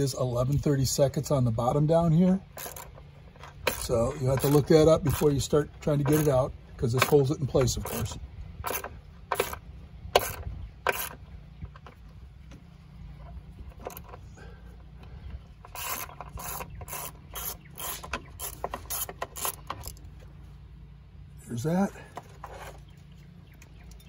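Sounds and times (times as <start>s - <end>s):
socket ratchet clicking: 7.0s - 9.6s, 10.2s - 11.2s, 15.7s - 20.1s.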